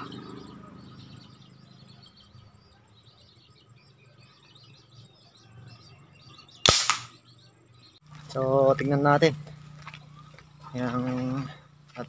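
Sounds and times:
birds chirping: 0.0 - 12.0
gun firing sharp shot: 6.6 - 7.2.

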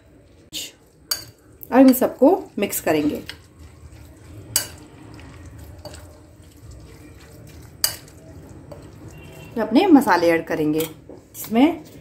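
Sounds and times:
spoon stirring wet batter: 0.0 - 12.0
spoon clinking on glass bowl: 7.8 - 8.2.

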